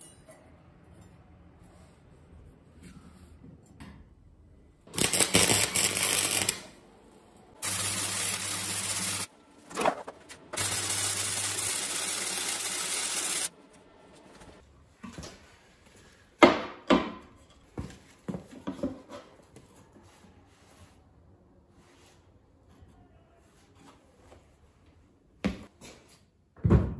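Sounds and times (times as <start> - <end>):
arc welding hiss: 7.6 - 9.3, 10.6 - 13.5.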